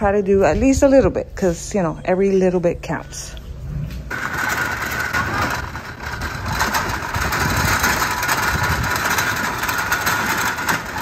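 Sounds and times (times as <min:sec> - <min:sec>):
cart wheels rolling on asphalt: 0:03.8 - 0:11.0
metal cart frame rattling: 0:04.1 - 0:11.0.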